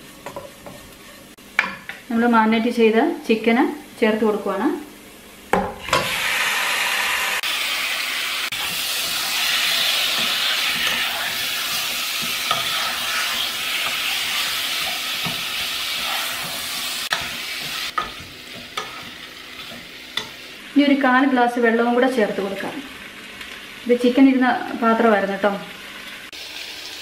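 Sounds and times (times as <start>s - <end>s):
chicken sizzling in a pot: 5.6s - 27.0s.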